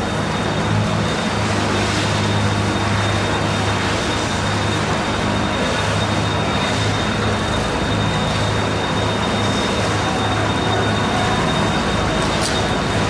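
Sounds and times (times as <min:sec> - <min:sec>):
high steady whine: 0:00.0 - 0:13.0
low machine hum: 0:00.0 - 0:13.0.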